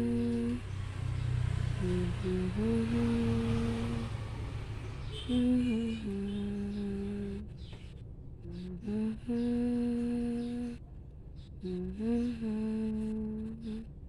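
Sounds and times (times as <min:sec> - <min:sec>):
woman humming a lullaby: 0:00.0 - 0:00.6, 0:01.8 - 0:04.1, 0:08.4 - 0:10.8, 0:11.6 - 0:13.9.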